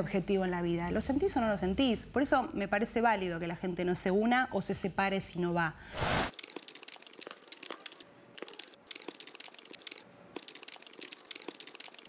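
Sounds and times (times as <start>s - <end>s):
keyboard typing clicks: 6.4s - 12.0s.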